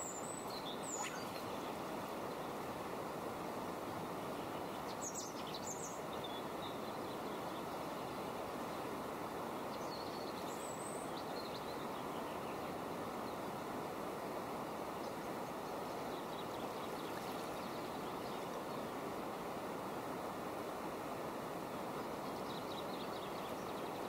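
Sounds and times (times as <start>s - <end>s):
faint bird chirps: 0.0s - 2.6s
flowing river water: 0.0s - 24.0s.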